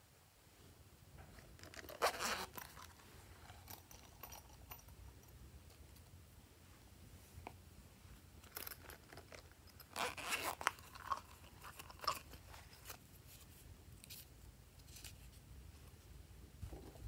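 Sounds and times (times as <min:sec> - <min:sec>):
silicone pouch crinkling: 0:08.8 - 0:15.4.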